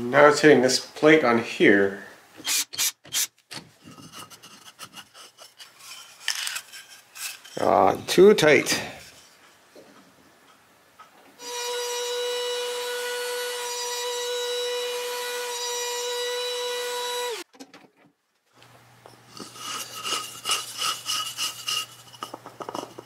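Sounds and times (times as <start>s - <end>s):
wood scraping on wood: 3.1s - 9.9s, 19.2s - 23.0s
trim router high whine: 11.4s - 17.4s.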